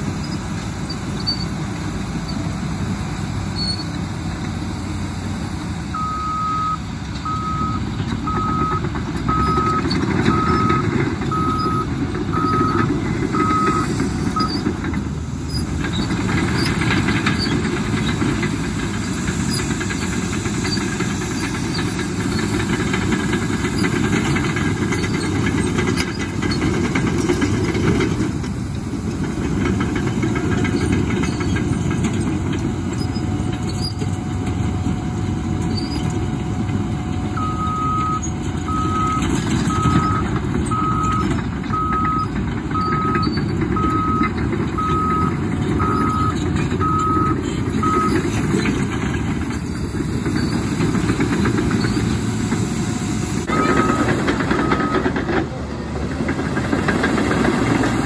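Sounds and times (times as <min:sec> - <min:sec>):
bulldozer diesel engines: 0:00.0 - 0:58.0
reversing alarm beeping: 0:05.9 - 0:14.7, 0:37.4 - 0:48.2, 0:53.5 - 0:55.2
crawler tracks running: 0:08.4 - 0:58.0.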